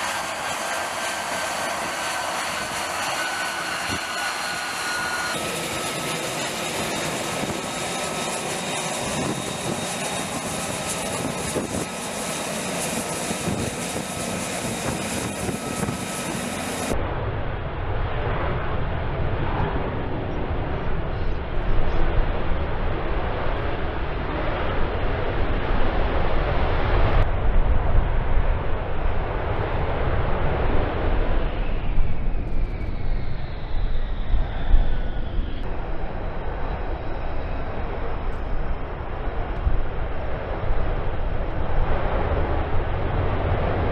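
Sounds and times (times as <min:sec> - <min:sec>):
high whine falling in pitch: 0:00.0 - 0:11.8
jet engine running: 0:00.0 - 0:43.9.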